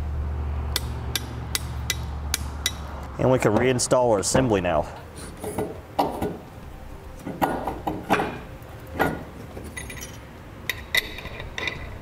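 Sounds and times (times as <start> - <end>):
light metallic clinks and knocks: 7.2 - 12.0.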